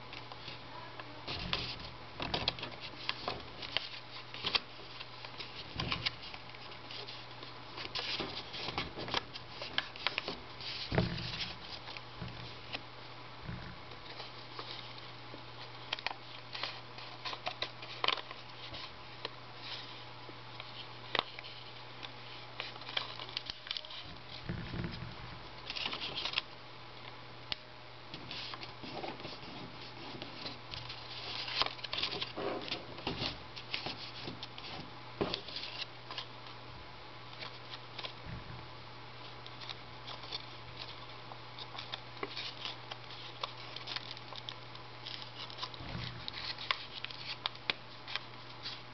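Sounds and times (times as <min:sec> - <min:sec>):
steady low hum: 0:00.0 - 0:48.9
paper rustling and crinkling: 0:01.2 - 0:12.8, 0:13.9 - 0:24.4, 0:25.6 - 0:26.5, 0:28.2 - 0:36.6, 0:37.3 - 0:38.2, 0:39.2 - 0:48.9.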